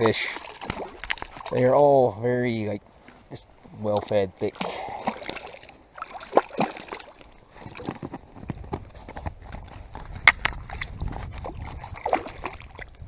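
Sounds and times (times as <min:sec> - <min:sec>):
fish splashing at water surface: 0:00.0 - 0:01.5, 0:04.6 - 0:07.9, 0:11.5 - 0:12.9.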